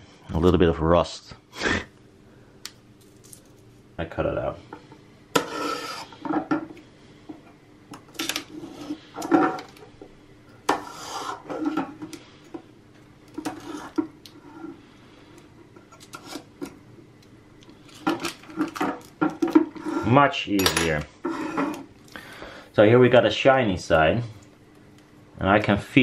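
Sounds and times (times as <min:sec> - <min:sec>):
knife scraping plastic: 0:05.4 - 0:06.3, 0:10.6 - 0:12.2, 0:13.3 - 0:14.8, 0:15.8 - 0:16.7, 0:21.2 - 0:21.9.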